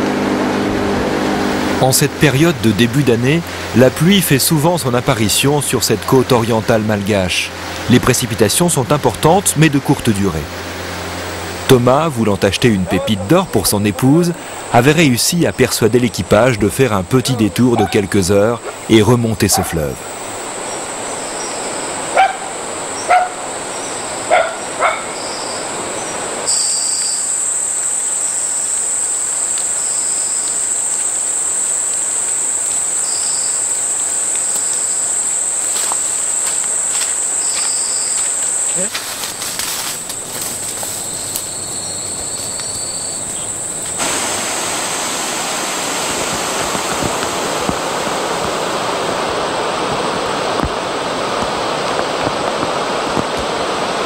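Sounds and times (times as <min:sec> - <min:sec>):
background hiss: 0:01.2 - 0:54.0
dog barking: 0:12.8 - 0:13.4, 0:17.7 - 0:18.9, 0:19.5 - 0:19.9, 0:22.1 - 0:23.4, 0:24.3 - 0:25.2
high-pitched insect drone: 0:25.2 - 0:44.0.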